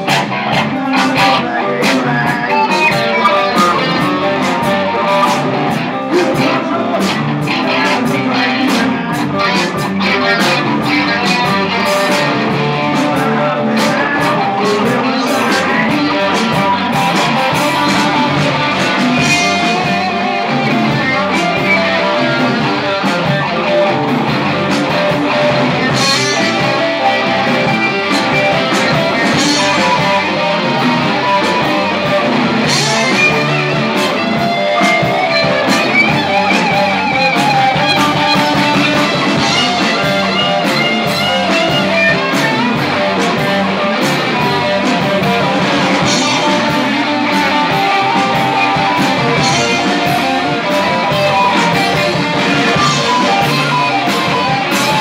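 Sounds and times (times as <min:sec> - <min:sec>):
blues band playing: 0:00.0 - 0:55.0
electric guitar: 0:00.0 - 0:55.0.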